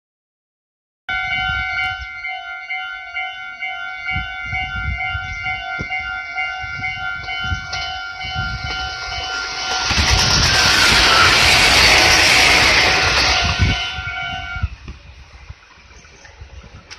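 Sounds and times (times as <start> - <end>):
level crossing warning bell: 1.1 - 14.7
electric train running noise: 1.1 - 15.8
low rumbling gusts: 4.0 - 16.9.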